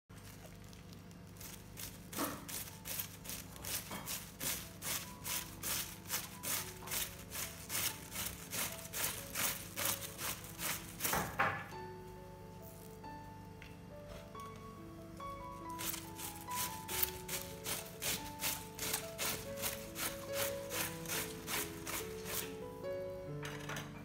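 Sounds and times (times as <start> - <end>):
knife slicing cabbage: 1.3 - 11.5, 15.6 - 22.6
background music: 1.4 - 24.0.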